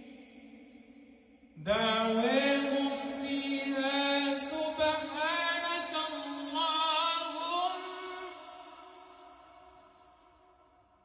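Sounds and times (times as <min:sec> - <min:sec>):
man chanting recitation: 0:01.6 - 0:08.7.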